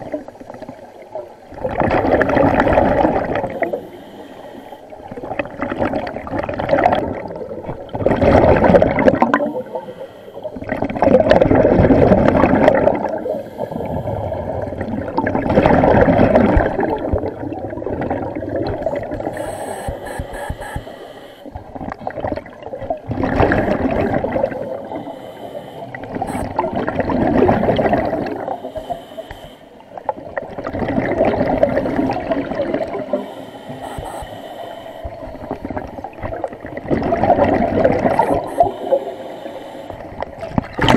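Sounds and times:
rush of exhaled bubbles: 0.0s - 4.0s, 4.9s - 29.0s, 30.0s - 40.9s
diver breathing through a regulator: 1.7s - 5.1s, 9.0s - 11.0s, 13.1s - 14.9s, 18.9s - 21.7s, 23.3s - 26.7s, 27.5s - 30.1s, 31.5s - 36.1s, 37.4s - 40.4s.

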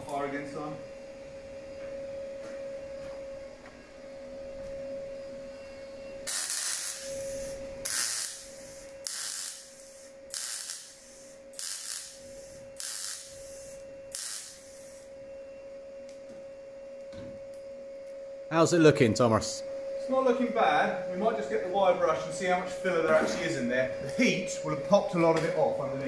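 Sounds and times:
steady hum: 0.0s - 26.0s
welder arcing bursts: 6.3s - 15.1s.

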